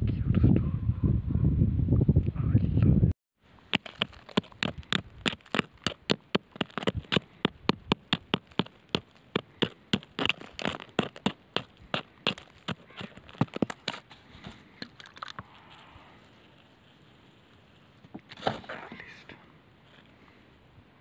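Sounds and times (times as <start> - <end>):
metal tool scraping gravelly soil: 3.7 - 18.9.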